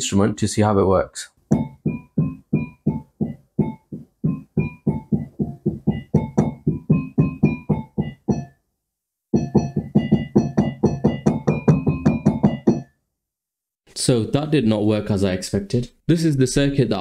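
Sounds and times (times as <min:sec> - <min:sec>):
synthesized mallet notes: 0:01.5 - 0:08.6, 0:09.3 - 0:13.0.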